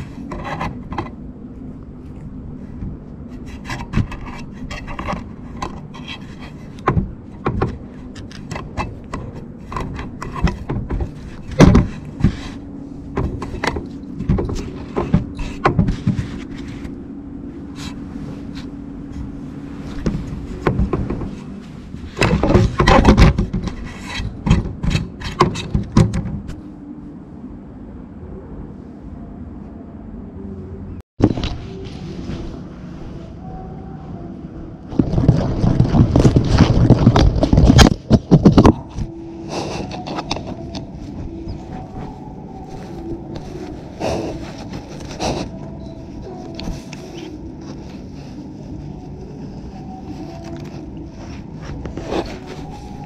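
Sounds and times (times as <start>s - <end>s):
cat rubbing against microphone: 38.8s - 53.0s.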